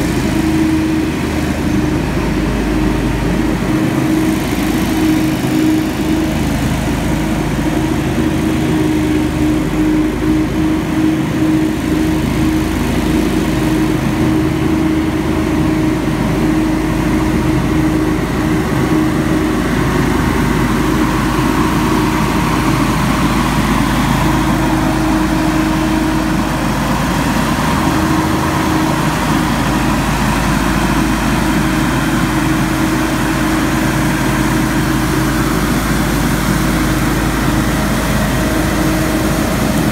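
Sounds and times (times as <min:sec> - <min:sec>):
leaf blower droning: 0:00.0 - 0:39.9.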